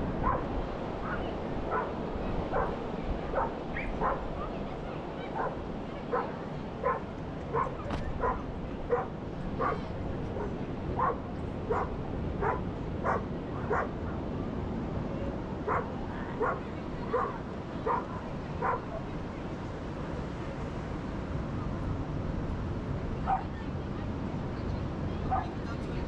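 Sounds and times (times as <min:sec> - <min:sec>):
ocean surf: 0:00.0 - 0:26.0
dog barking: 0:00.2 - 0:04.3, 0:05.4 - 0:09.8, 0:10.4 - 0:13.9, 0:15.7 - 0:19.1, 0:23.3 - 0:23.5, 0:25.3 - 0:25.5.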